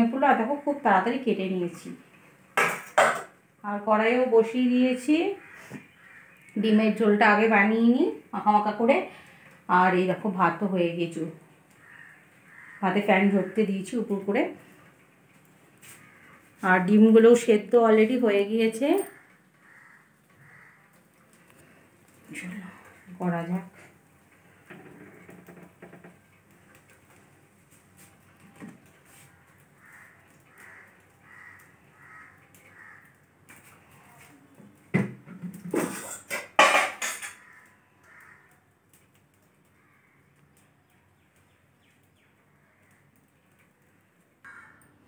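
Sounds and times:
metal cookware clattering: 2.6s - 3.4s, 35.8s - 37.4s
crow cawing: 5.3s - 6.5s, 11.7s - 13.6s, 15.8s - 16.5s, 19.0s - 21.8s, 29.5s - 33.3s, 37.2s - 38.7s, 39.6s - 40.5s, 42.5s - 43.2s, 44.4s - 45.0s.

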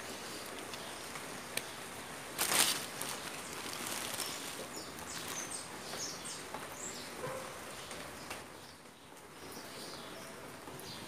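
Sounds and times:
trowel rustling in potting soil: 0.0s - 6.0s.

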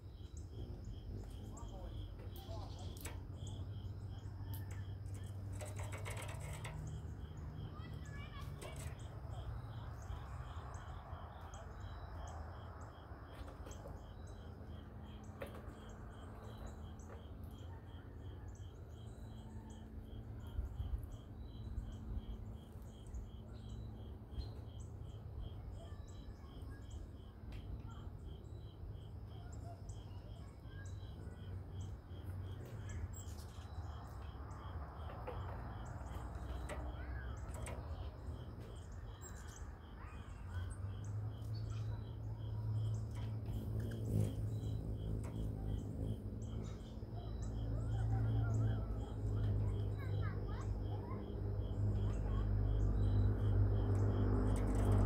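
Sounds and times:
low background rumble: 31.0s - 55.0s.

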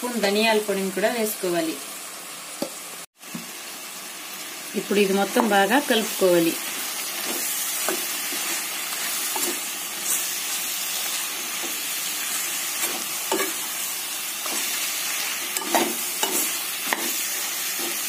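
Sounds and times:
food sizzling in oil: 0.0s - 18.0s
metal spatula scraping pan: 14.4s - 18.0s.

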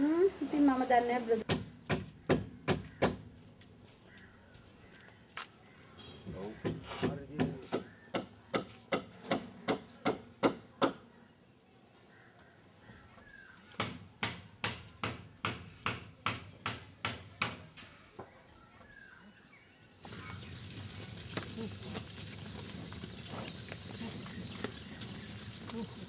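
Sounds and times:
faint bird chirps: 17.9s - 20.6s.

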